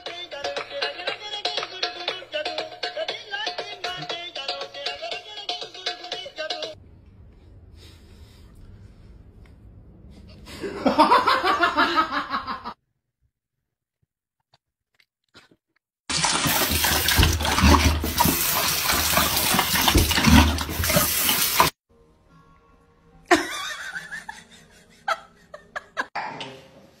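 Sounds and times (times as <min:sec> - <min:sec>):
dog drinking from water stream: 0:16.1 - 0:21.8
faucet running into sink: 0:16.1 - 0:21.8.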